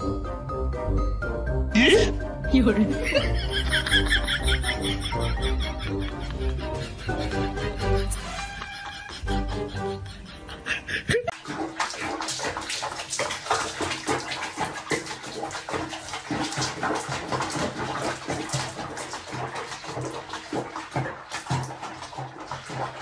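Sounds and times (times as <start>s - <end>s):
background music: 0.0s - 11.3s
water splashing in a sink: 2.6s - 9.2s, 11.2s - 23.0s.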